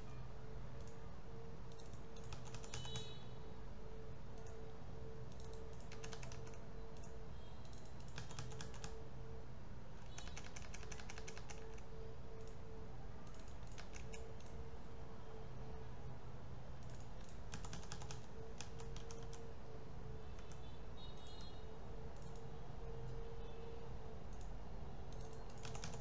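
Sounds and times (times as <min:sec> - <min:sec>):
low electrical hum: 0:00.0 - 0:26.0
keyboard keys clicking: 0:01.7 - 0:03.1, 0:05.3 - 0:09.0, 0:10.0 - 0:12.6, 0:13.2 - 0:14.6, 0:16.8 - 0:19.4, 0:20.4 - 0:20.7, 0:22.2 - 0:22.5, 0:24.3 - 0:26.0.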